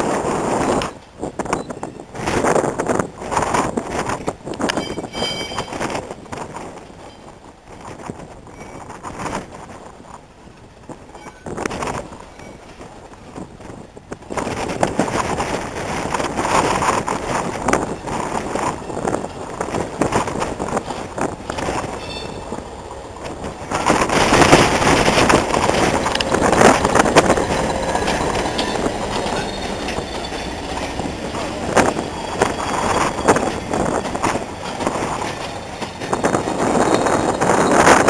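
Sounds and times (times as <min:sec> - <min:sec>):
train wheel clicks: 0:03.3 - 0:09.6, 0:14.1 - 0:38.0
diesel train passing: 0:13.8 - 0:38.0.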